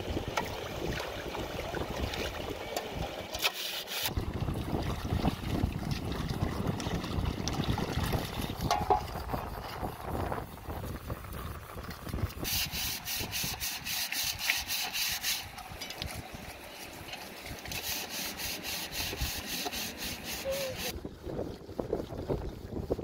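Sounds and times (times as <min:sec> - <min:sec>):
rapid scrubbing strokes: 0:03.4 - 0:04.1, 0:08.2 - 0:20.9.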